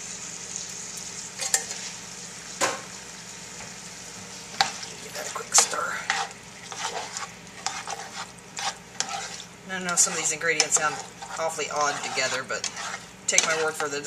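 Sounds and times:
meat sizzling in a skillet: 0.0 - 14.0
spoon scraping a pan: 1.4 - 1.9, 4.5 - 14.0.

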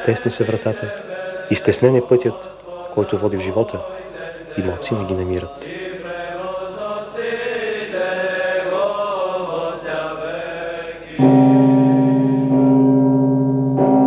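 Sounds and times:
liturgical chanting: 0.0 - 14.0
deep bell ringing: 11.2 - 14.0.

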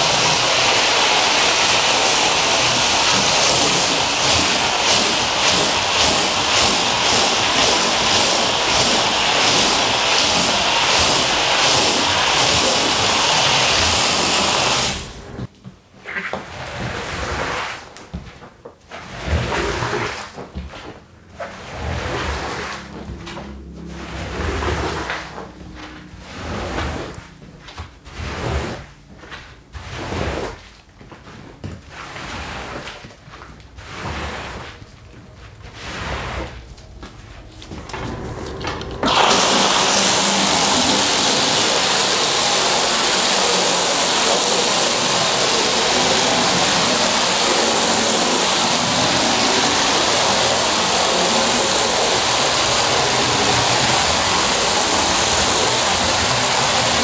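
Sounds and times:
squeegee swishing on wet rug: 0.0 - 15.5, 16.5 - 53.0
water spraying hiss: 0.0 - 15.5, 35.7 - 57.0.

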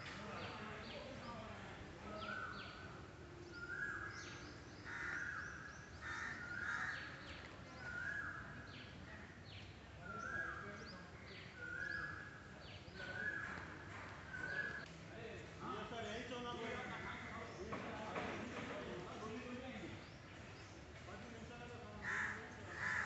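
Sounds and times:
low background noise: 0.0 - 23.0
crows cawing: 4.8 - 7.2, 22.0 - 23.0.

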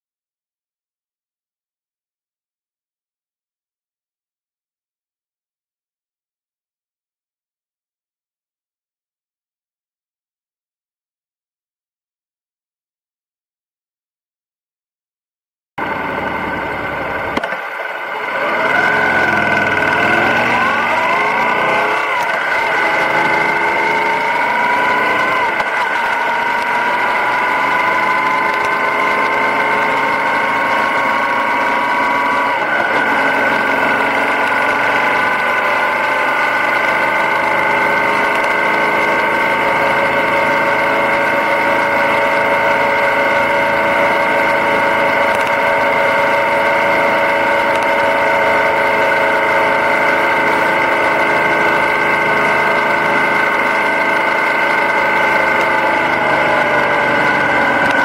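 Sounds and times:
motorcycle engine running: 15.8 - 58.0.

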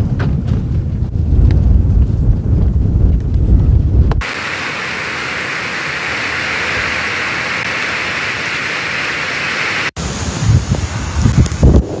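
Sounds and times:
wind buffeting microphone: 0.0 - 4.7, 10.0 - 12.0
heavy rain falling: 2.0 - 12.0.

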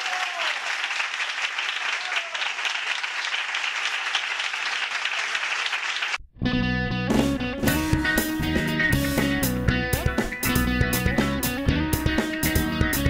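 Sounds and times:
crowd applauding: 0.0 - 6.2
guitar-led music: 6.4 - 13.0.

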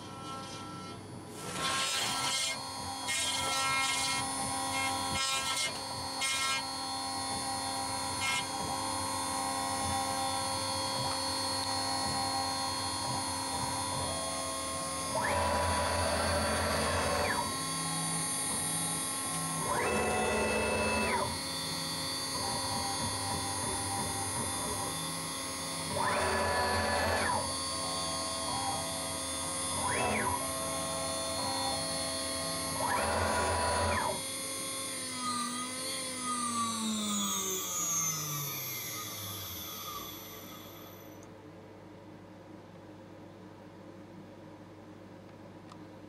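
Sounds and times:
router spindle whine: 0.0 - 41.2
bit cutting wood: 1.4 - 6.9.

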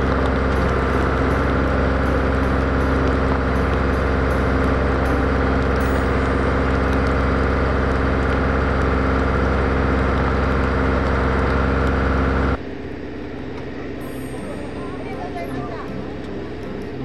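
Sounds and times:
heavy vehicle engine idling: 0.0 - 17.0.

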